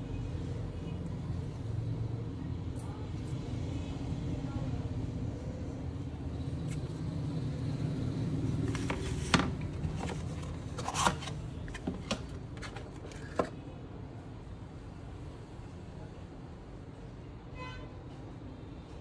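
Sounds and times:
cardboard box and packaging handled: 8.5 - 13.6.

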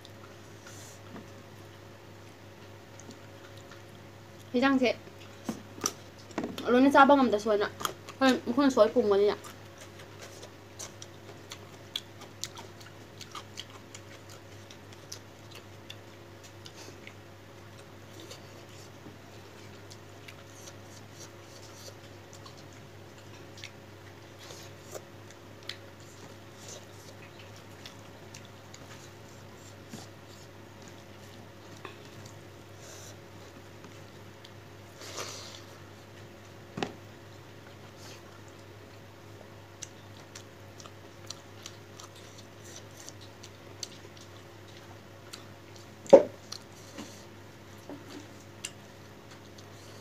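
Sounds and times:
steady low hum: 0.0 - 50.0
wet chewing and lip smacks: 2.6 - 4.5, 9.4 - 19.0, 19.6 - 32.4, 39.8 - 47.1.

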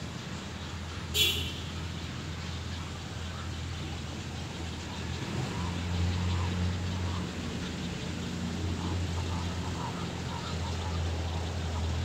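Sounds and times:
vehicle engine hum: 0.0 - 12.0.

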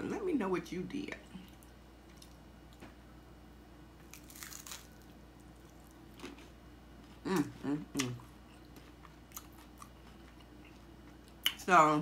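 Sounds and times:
taco shell crunching: 4.0 - 6.5.

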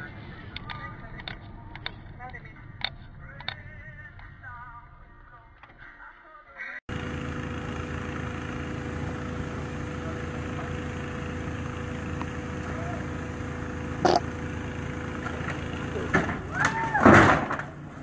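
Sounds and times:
constant tone: 6.9 - 18.0
steady mechanical hum: 6.9 - 18.0.

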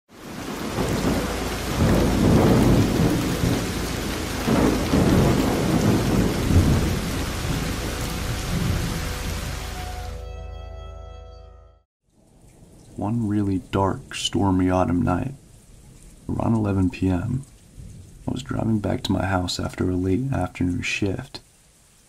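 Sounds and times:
heavy rain falling: 0.1 - 10.2, 12.1 - 22.0
thunder rumbling: 0.1 - 10.2.

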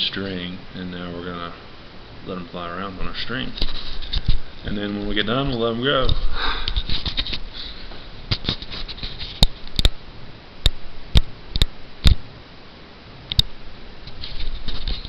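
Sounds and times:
camera handling rustle: 3.6 - 4.4, 6.0 - 9.8, 14.1 - 15.0
sharp irregular clicks and taps: 10.6 - 12.2, 13.3 - 13.5.

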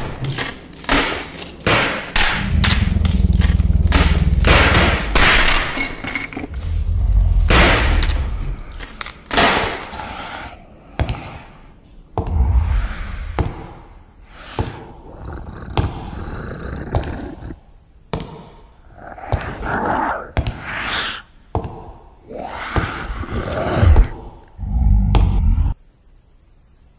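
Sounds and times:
roar-like noise swells: 2.4 - 5.2, 6.5 - 8.8, 12.2 - 14.2, 22.2 - 25.8
deep rumble: 2.4 - 5.4, 6.5 - 8.9, 12.2 - 14.2, 23.1 - 25.8.

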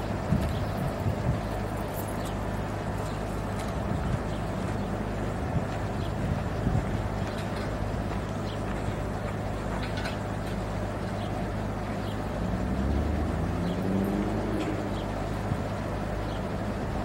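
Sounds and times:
diesel engine revving: 11.4 - 17.0.

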